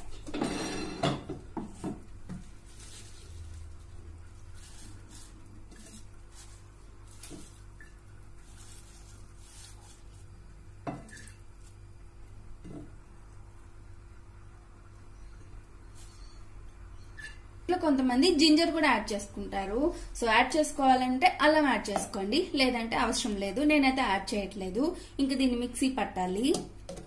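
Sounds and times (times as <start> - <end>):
leaves rustling: 2.4 - 10.4.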